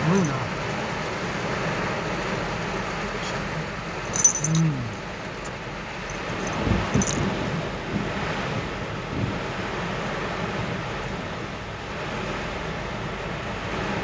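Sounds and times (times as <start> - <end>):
heavy rain hissing: 0.0 - 14.0
low moan: 4.4 - 5.0.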